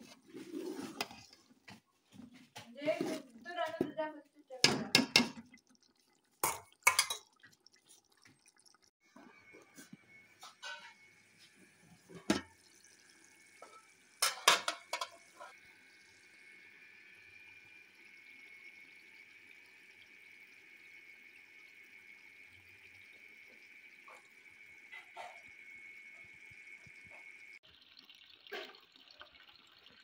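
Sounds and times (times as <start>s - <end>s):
metal pot lid clanking: 6.4s - 7.2s, 14.2s - 15.5s
curry simmering hiss: 14.4s - 27.6s.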